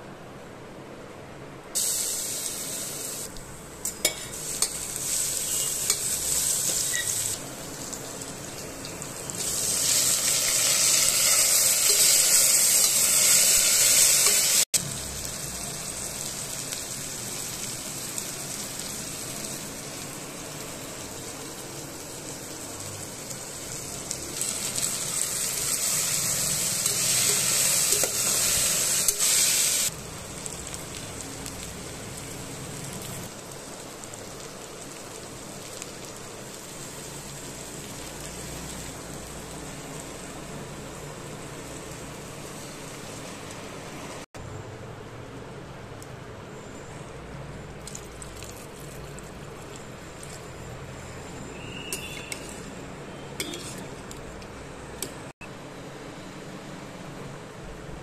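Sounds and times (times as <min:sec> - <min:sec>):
vegetables sizzling in hot oil: 0:01.8 - 0:44.3, 0:47.6 - 0:55.3
metal spoon clinking on pot: 0:03.8 - 0:04.8, 0:53.4 - 0:54.1.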